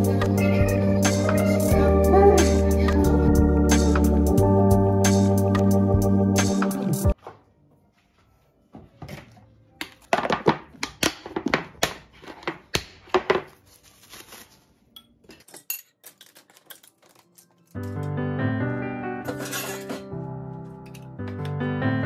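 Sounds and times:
kitchen utensils clattering: 15.0 - 17.9, 19.2 - 20.2.

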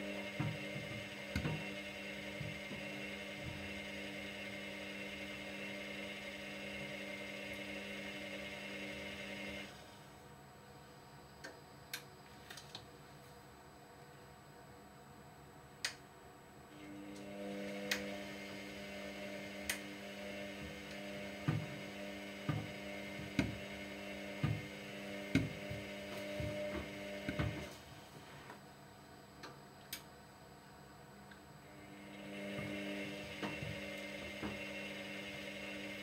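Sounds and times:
washing machine motor humming: 0.0 - 9.9, 16.8 - 28.5, 31.6 - 36.0.

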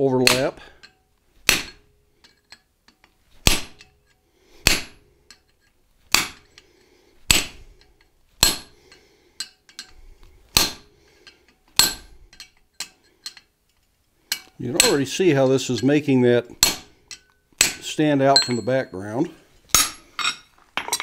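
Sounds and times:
hammer striking steel on anvil: 0.2 - 5.5, 6.1 - 6.6, 7.3 - 7.6, 8.4 - 9.9, 10.5 - 11.0, 11.8 - 13.4, 14.3 - 15.1, 16.6 - 18.9, 19.7 - 21.0.

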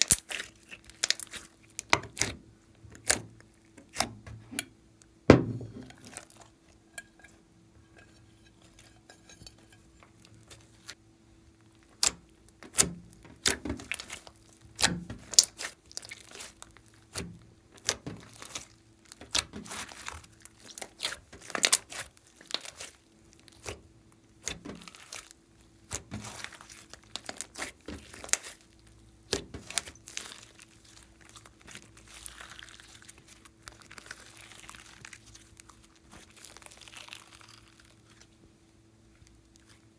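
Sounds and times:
hands squishing slime: 0.0 - 4.2, 11.8 - 38.3.

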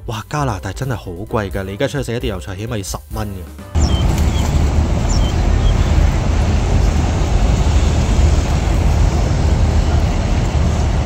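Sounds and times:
low outdoor rumble: 3.8 - 11.0.

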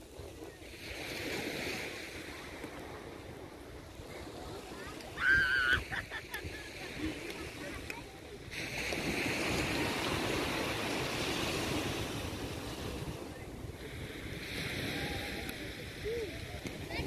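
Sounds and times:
surf washing onto sand: 0.0 - 17.0
wind rumble on microphone: 0.0 - 17.0.

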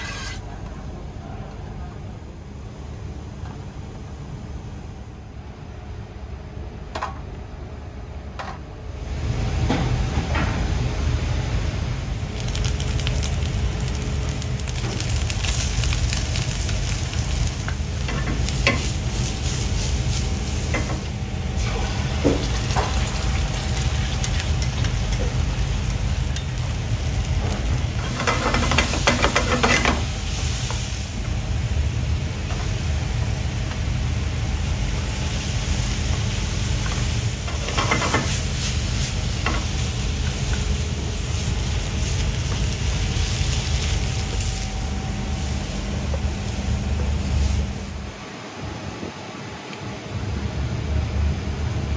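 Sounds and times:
steady low hum: 0.0 - 51.9
food sizzling: 11.6 - 48.1.

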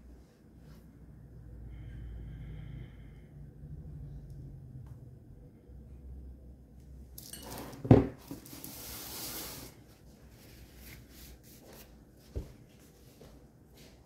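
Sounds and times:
handling rustling and rubbing: 7.4 - 14.0.

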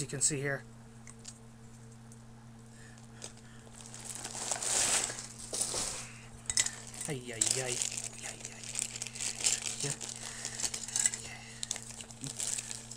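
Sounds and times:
plastic wrapping crinkling: 3.0 - 12.9.

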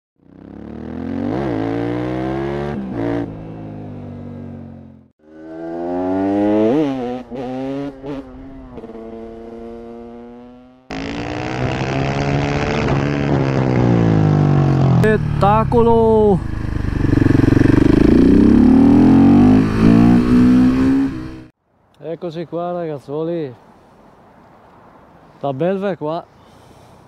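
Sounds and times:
motorcycle engine revving: 0.2 - 21.5.

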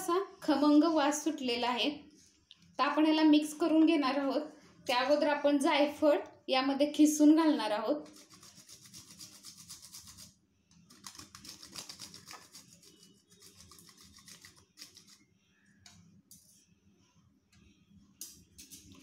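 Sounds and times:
nutmeg grating on metal grater: 8.0 - 15.2.

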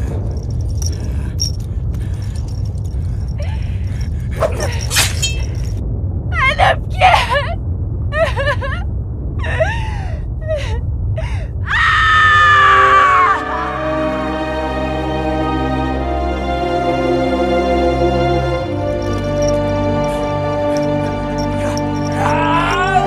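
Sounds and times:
low rumble: 0.0 - 14.8
woman sobbing and gasping: 7.0 - 8.8, 9.4 - 11.6.

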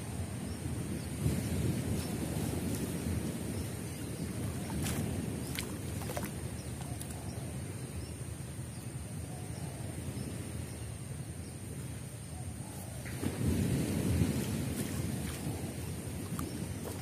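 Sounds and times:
water sloshing and dripping: 1.9 - 7.4, 14.3 - 17.0.

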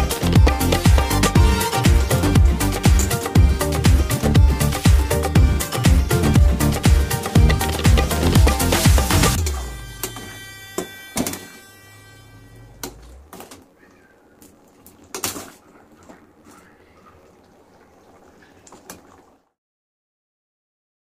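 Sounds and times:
background music: 0.0 - 13.2.

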